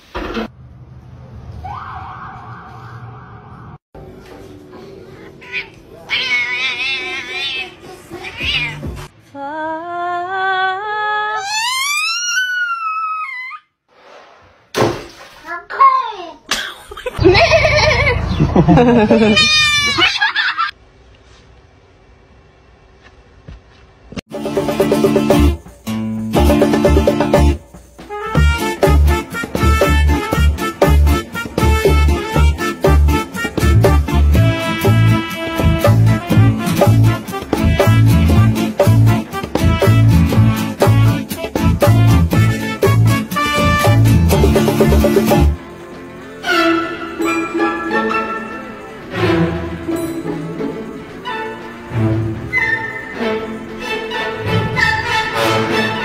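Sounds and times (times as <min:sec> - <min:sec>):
cat meowing: 0:05.4 - 0:08.8
upbeat music with bass beat: 0:24.3 - 0:45.6.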